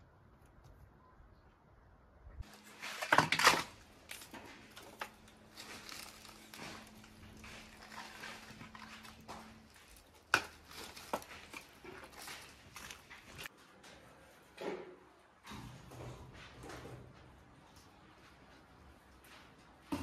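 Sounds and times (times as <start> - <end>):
twigs cracking: 2.4 - 13.5
wood clattering: 2.6 - 13.5.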